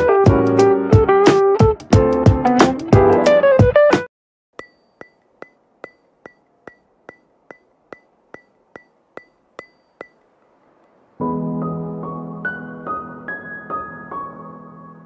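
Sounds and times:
sustained keyboard music: 0.0s - 4.1s
sharp percussive ticks: 4.6s - 11.0s.

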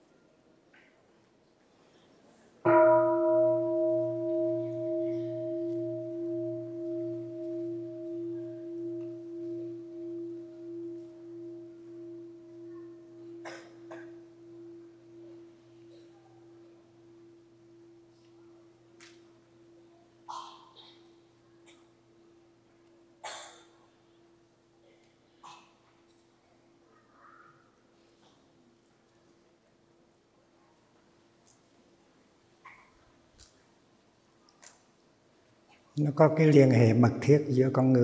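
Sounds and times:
bowl bell ringing: 2.7s - 13.4s.

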